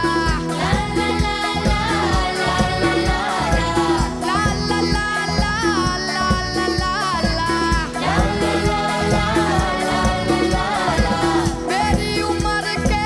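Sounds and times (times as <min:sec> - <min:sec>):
band with steady beat: 0:00.0 - 0:13.0
group singing upbeat song: 0:00.0 - 0:13.0.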